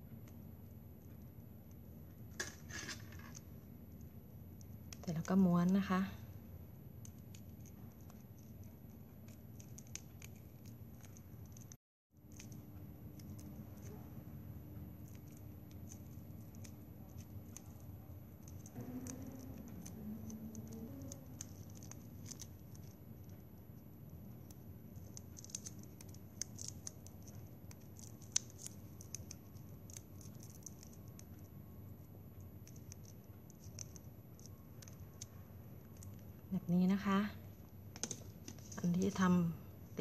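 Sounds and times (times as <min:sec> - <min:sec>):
low steady hum: 0:00.0 - 0:40.0
small irregular clicks: 0:06.9 - 0:36.5.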